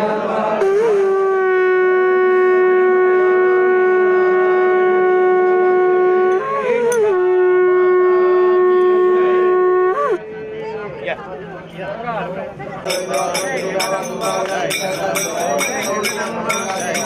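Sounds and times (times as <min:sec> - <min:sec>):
conch shell blasts: 0:12.9 - 0:17.0.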